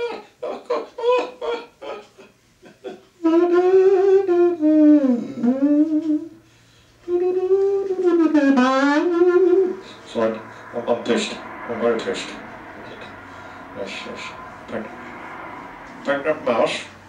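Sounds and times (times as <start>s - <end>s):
man humming long note: 3.2s - 6.4s, 7.0s - 17.0s.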